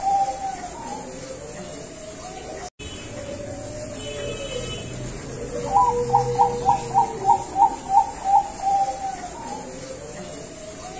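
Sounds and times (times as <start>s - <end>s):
dove cooing: 0.0s - 10.9s.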